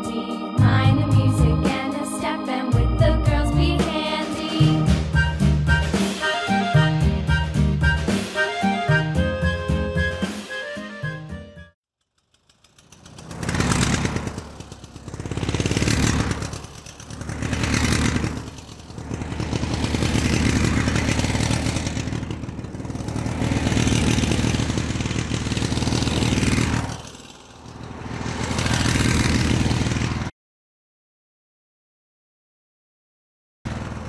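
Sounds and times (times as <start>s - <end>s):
engine revving: 2.9s - 10.1s, 12.0s - 30.3s, 33.7s - 34.0s.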